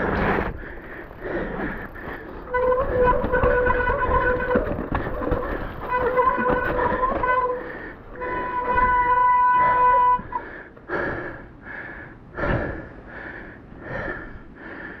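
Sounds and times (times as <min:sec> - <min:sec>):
heavy breathing: 0:00.0 - 0:03.5, 0:04.4 - 0:15.0
high-pitched bike whine: 0:00.0 - 0:10.4.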